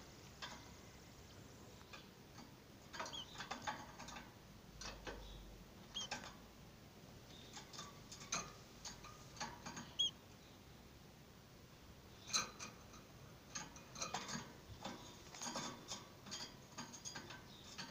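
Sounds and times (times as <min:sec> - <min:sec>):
light clicks and taps in cage: 0:00.2 - 0:06.4, 0:07.3 - 0:10.1, 0:12.2 - 0:17.9
canary chirping: 0:01.7 - 0:06.4, 0:07.2 - 0:10.6, 0:13.5 - 0:17.9.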